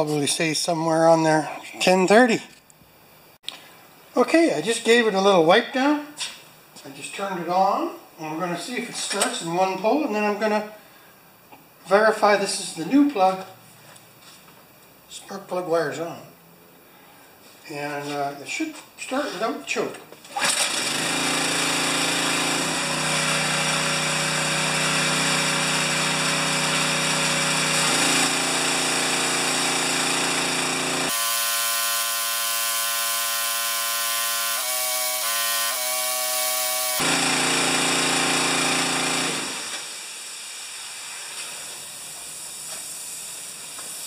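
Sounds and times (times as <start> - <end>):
small gasoline engine running: 20.4 - 40.1.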